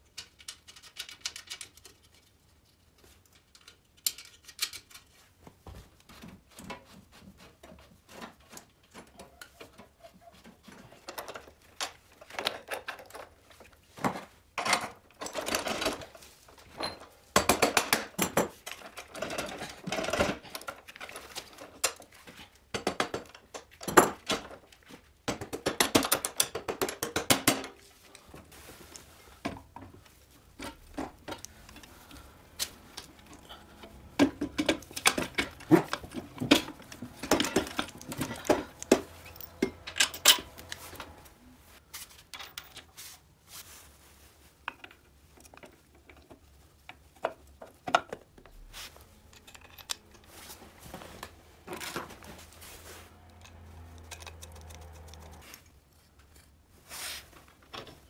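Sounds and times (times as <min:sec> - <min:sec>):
metal tools clicking and clinking: 0:03.3 - 0:05.1, 0:14.6 - 0:22.2, 0:25.4 - 0:28.2, 0:30.6 - 0:41.3, 0:47.9 - 0:56.5
knocks and clinks: 0:33.1 - 0:41.2.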